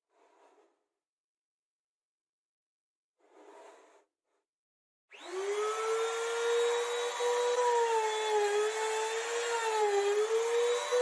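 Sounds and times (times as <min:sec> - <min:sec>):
router bit cutting wood: 0:05.1 - 0:11.0
trim router high whine: 0:05.1 - 0:11.0.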